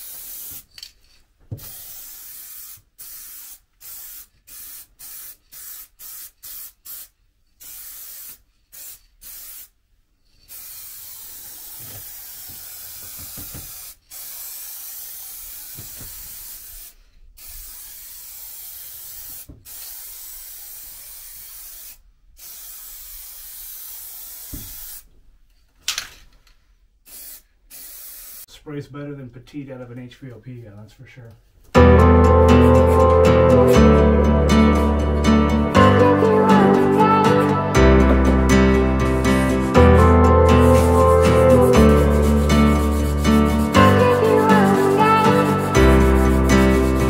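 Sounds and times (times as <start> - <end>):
paint spray gun hissing: 0.0 - 0.8, 1.5 - 9.8, 10.5 - 25.1, 27.1 - 28.5, 40.6 - 47.0.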